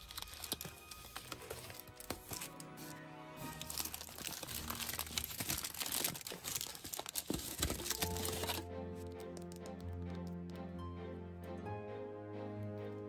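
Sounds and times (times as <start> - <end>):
foil wrapper crinkling: 0.0 - 9.7
soft background music: 0.0 - 13.0.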